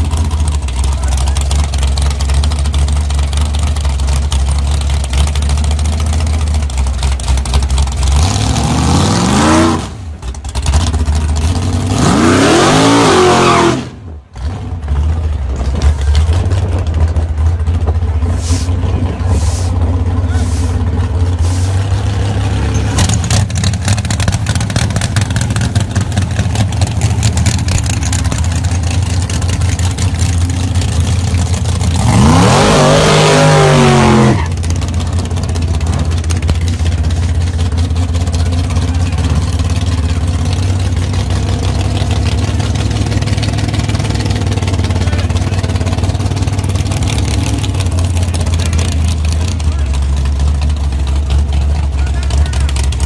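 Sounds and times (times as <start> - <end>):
race car engines rumbling: 0.0 - 53.0
race car engine revving hard: 8.0 - 14.9, 18.3 - 35.1.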